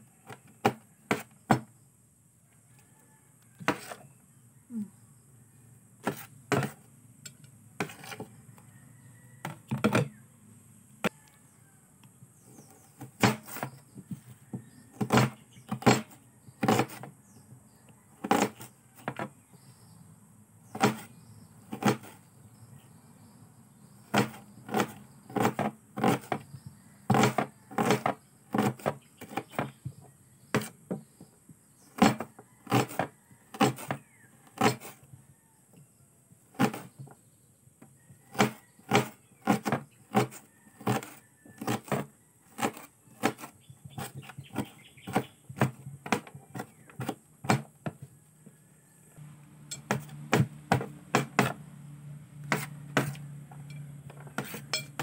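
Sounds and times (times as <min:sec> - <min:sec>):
knife chopping onion: 0:03.6 - 0:04.0, 0:06.0 - 0:06.8, 0:07.8 - 0:08.4, 0:12.6 - 0:13.8, 0:14.6 - 0:17.1, 0:18.2 - 0:19.3, 0:20.7 - 0:21.1, 0:21.7 - 0:22.2, 0:24.0 - 0:26.5, 0:27.1 - 0:29.8, 0:30.5 - 0:31.0, 0:32.0 - 0:35.0, 0:36.5 - 0:37.0, 0:38.3 - 0:48.0, 0:49.7 - 0:51.6, 0:52.5 - 0:55.0.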